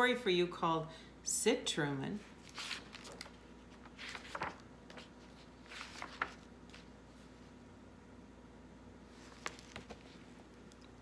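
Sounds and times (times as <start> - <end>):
faint steady hum: 0.0 - 11.0
book pages rustling: 2.4 - 7.4, 9.1 - 11.0.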